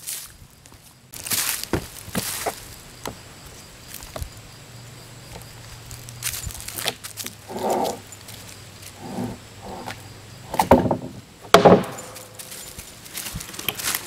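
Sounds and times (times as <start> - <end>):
wood scraping on wood: 6.7 - 14.0
wood knocks: 10.5 - 12.2.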